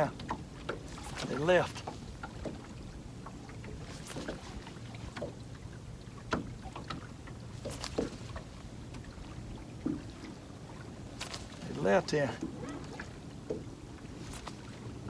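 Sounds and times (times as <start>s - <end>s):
boat engine low hum: 0.0s - 15.0s.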